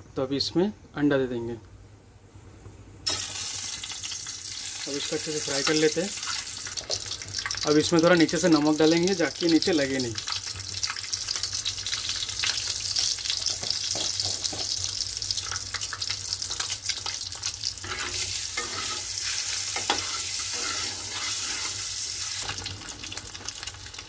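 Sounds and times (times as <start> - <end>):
hot oil sizzling and crackling: 3.0 - 24.0
spatula moving eggs in pan: 16.5 - 22.6.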